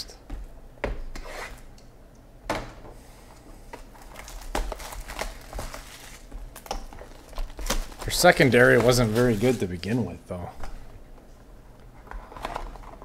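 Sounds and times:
plastic wrap crinkling: 3.7s - 10.2s.

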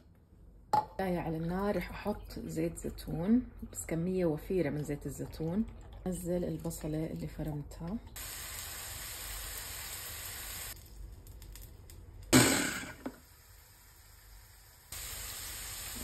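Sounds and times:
onion sizzling in a frying pan: 8.2s - 16.0s
food chopper pulse: 12.4s - 13.1s.

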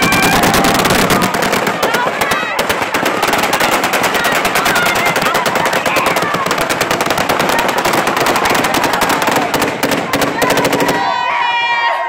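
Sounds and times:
automatic gunfire bursts: 0.0s - 10.9s.

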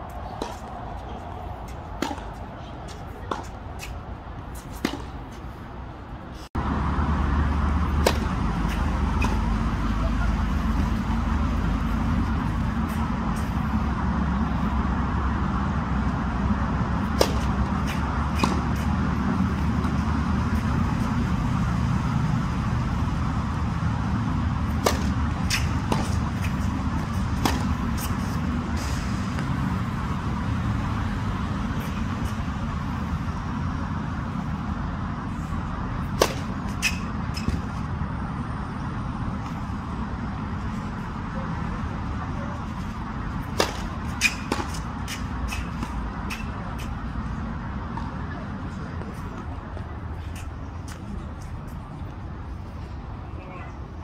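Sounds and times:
low outdoor rumble: 0.0s - 54.0s
tennis ball pops on hard court: 24.8s - 26.2s.

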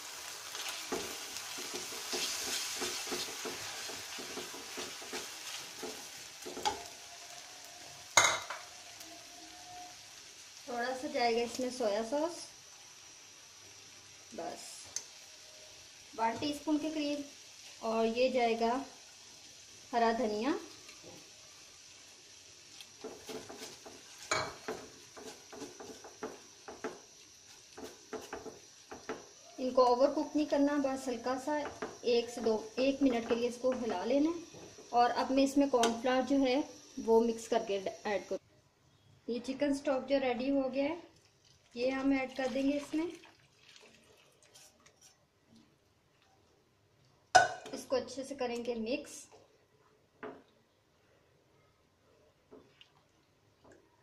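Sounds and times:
onions sizzling in a frying pan: 0.0s - 43.2s, 46.8s - 49.6s
spatula stirring and scraping: 0.6s - 6.9s, 22.7s - 29.4s, 43.8s - 45.3s.

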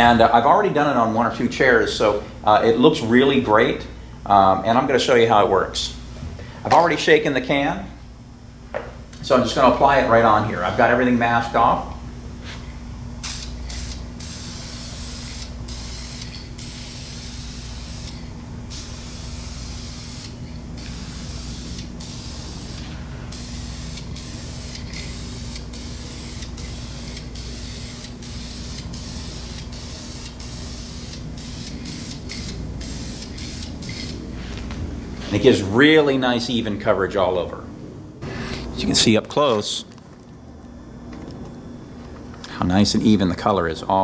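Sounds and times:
steady low hum: 0.0s - 44.0s
aerosol spray hissing: 13.2s - 34.6s.

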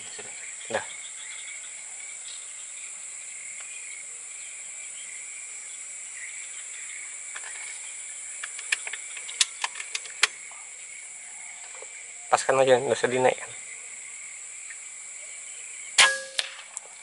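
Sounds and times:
insect chorus drone: 0.0s - 17.0s
sharp clicks: 8.4s - 10.4s.

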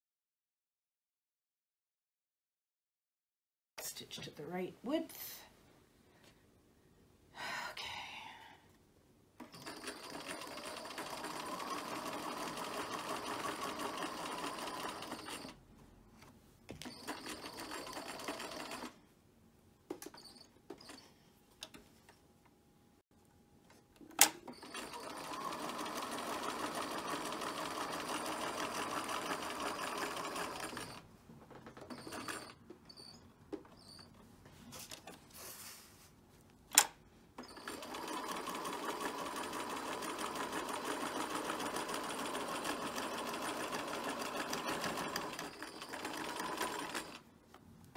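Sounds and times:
sewing machine stitching: 9.4s - 15.6s, 16.8s - 18.9s, 24.2s - 31.0s, 31.6s - 32.6s, 37.4s - 47.2s.

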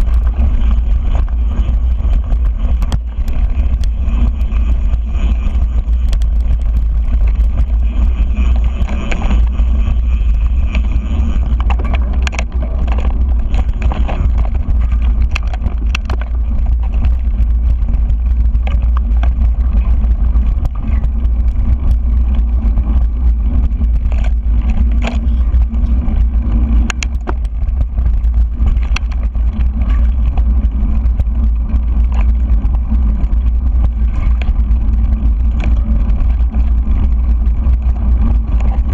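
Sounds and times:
bike clicks and rattles: 0.0s - 38.9s
wind buffeting microphone: 0.0s - 38.9s.

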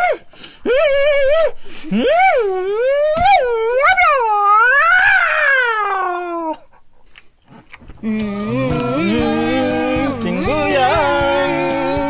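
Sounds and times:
man's mock animal cry: 0.0s - 6.6s
song with singing: 8.0s - 12.0s.

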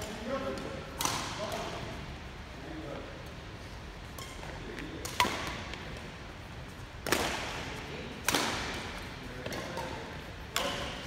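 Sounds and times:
racket hitting shuttlecock: 0.6s - 1.6s, 4.2s - 6.0s, 7.0s - 7.6s, 8.2s - 11.0s.

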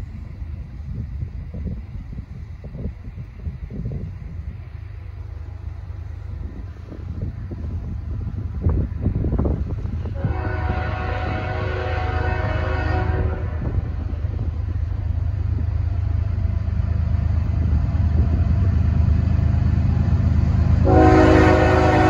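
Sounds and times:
train rumble: 0.0s - 22.0s
locomotive air horn blowing: 10.1s - 14.0s, 20.8s - 22.0s.

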